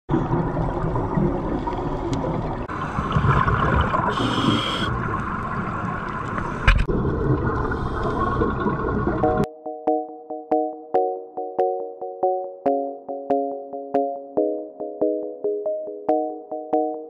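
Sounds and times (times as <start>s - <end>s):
muffled underwater rumble: 0.1s - 9.4s
regulator bubbles gurgling: 0.1s - 9.5s.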